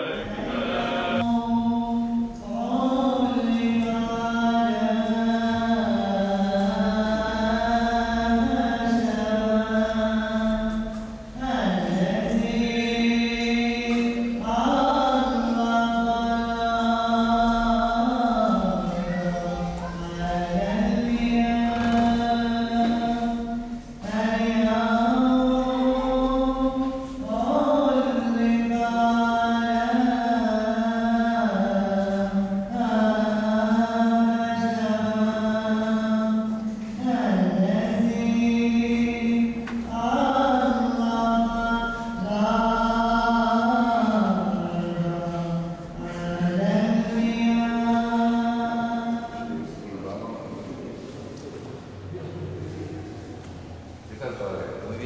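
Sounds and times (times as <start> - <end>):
liturgical chant: 0.0 - 55.0.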